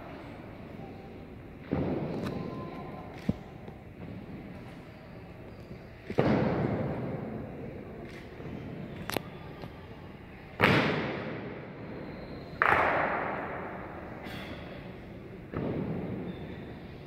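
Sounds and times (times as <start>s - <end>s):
loud echoing rifle strikes: 12.6s - 14.5s.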